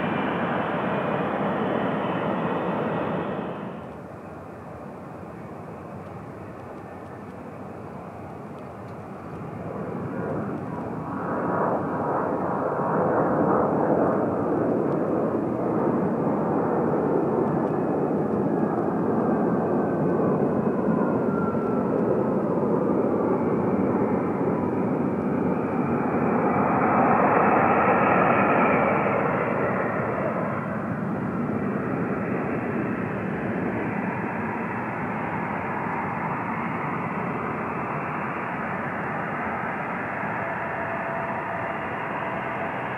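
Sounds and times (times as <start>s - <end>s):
falling engine whine: 0.0s - 4.3s, 25.2s - 42.9s
jet airliner engines: 0.0s - 42.9s.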